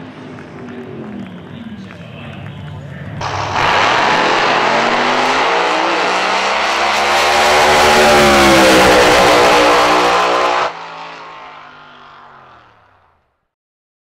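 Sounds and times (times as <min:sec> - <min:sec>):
drag racing engine at full throttle: 0:02.8 - 0:13.1.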